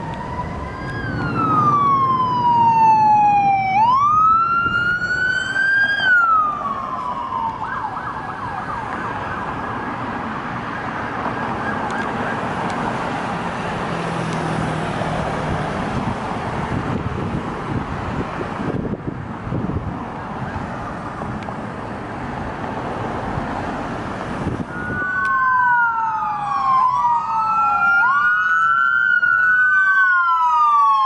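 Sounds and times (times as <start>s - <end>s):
police siren wailing and yelping: 0.0s - 12.8s, 24.6s - 31.0s
traffic noise: 0.0s - 31.0s.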